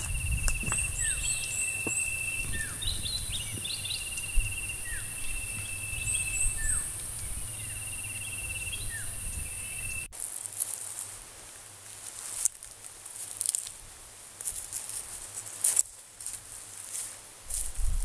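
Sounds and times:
falling bird calls: 0.0 - 10.1
high chirps: 0.0 - 10.1
low rumble: 0.0 - 10.1
high insect whine: 0.0 - 10.2.

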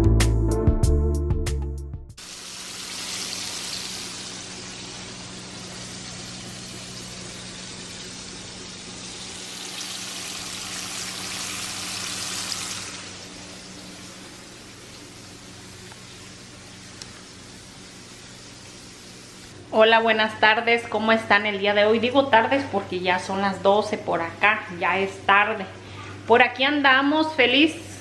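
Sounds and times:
intro music: 0.0 - 2.2
fish frying in hot oil: 2.2 - 19.6.

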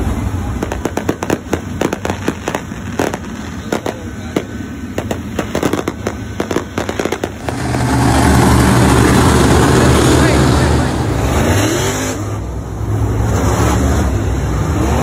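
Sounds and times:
race car engines roaring: 0.0 - 15.0
sharp pops and crackles: 0.6 - 8.0.

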